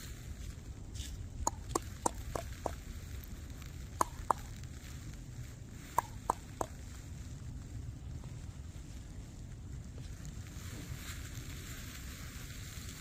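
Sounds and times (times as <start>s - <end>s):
wind rumble on microphone: 0.0s - 13.0s
sharp clicks: 1.5s - 2.8s, 4.0s - 4.5s, 6.0s - 6.8s.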